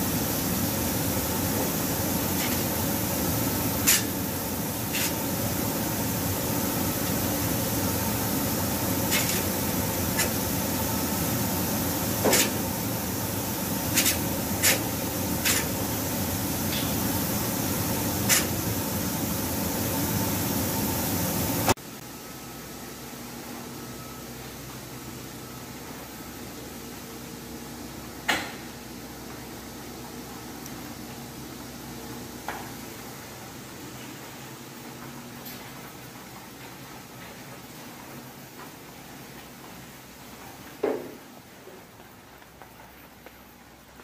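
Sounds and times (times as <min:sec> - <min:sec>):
rushing air from spray booth: 0:00.0 - 0:21.8
steady hum: 0:00.0 - 0:40.6.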